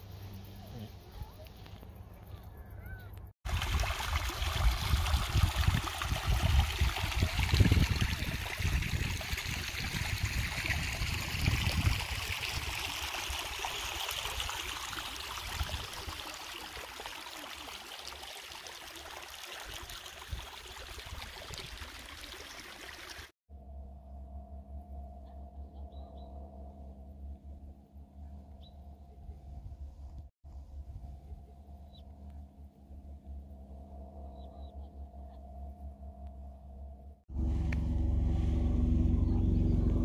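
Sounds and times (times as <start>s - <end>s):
brook trickling over stones: 3.4s - 23.3s
low rumble: 23.5s - 40.0s.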